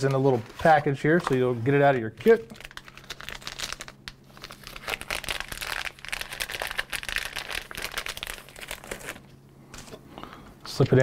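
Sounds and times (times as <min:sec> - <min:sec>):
plastic bag crinkling: 0:02.2 - 0:09.4.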